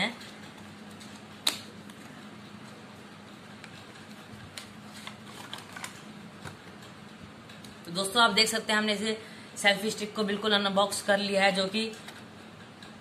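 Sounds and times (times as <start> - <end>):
faint steady hum: 0.0 - 13.0
sharp snap: 1.4 - 1.7.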